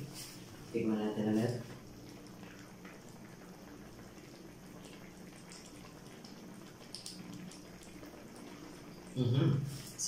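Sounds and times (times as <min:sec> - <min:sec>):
low steady hum: 0:00.0 - 0:10.0
soup simmering in a pan: 0:01.7 - 0:09.2.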